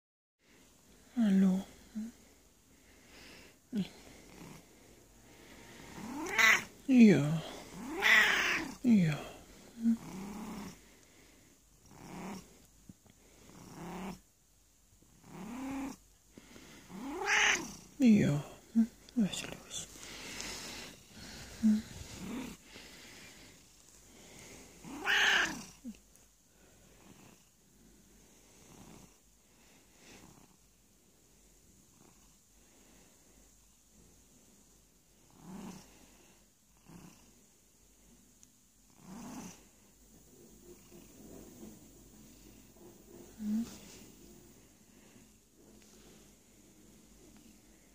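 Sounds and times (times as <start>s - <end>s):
cat purring: 1.0s - 14.3s, 15.0s - 47.9s
cat meowing: 6.1s - 6.7s, 7.8s - 8.8s, 17.0s - 17.7s, 24.9s - 25.7s.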